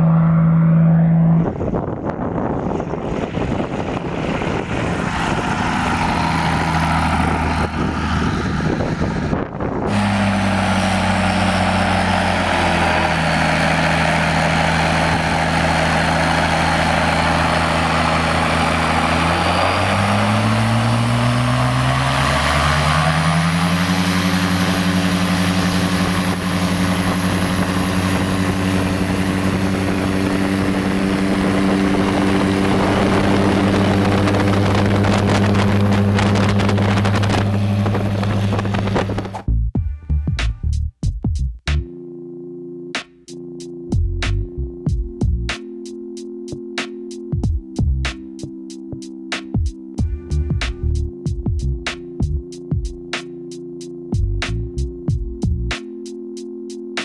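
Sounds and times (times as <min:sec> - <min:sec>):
aircraft engine and propeller: 0:00.0 - 0:39.5
thin high whine: 0:04.8 - 0:39.4.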